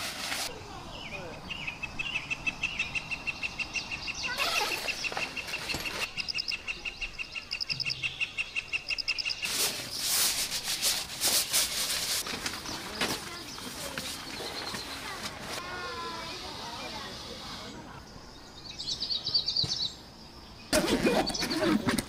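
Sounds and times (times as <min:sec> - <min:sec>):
nylon tent rustling and crinkling: 0:00.0 - 0:00.5, 0:09.4 - 0:15.8
bird calls: 0:00.9 - 0:10.1, 0:12.2 - 0:22.0.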